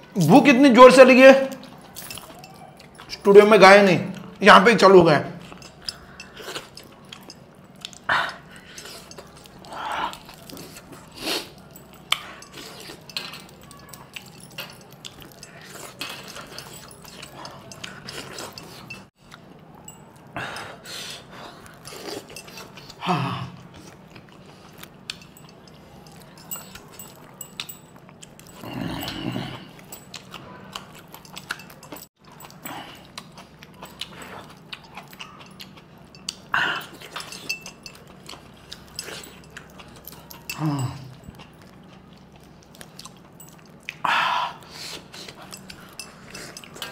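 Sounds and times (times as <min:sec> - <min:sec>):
wet chewing and lip smacking: 0:01.5 - 0:03.5, 0:05.4 - 0:23.0, 0:23.6 - 0:29.1, 0:29.7 - 0:46.9
clinks against steel bowl: 0:35.4 - 0:40.8.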